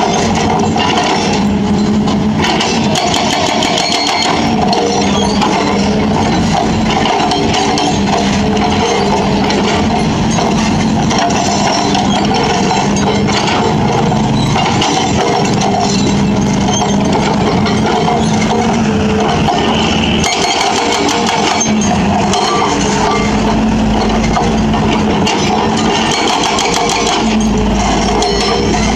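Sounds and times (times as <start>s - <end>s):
excavator diesel engine running: 0.0s - 28.9s
hydraulic breaker hammering concrete: 0.0s - 28.9s.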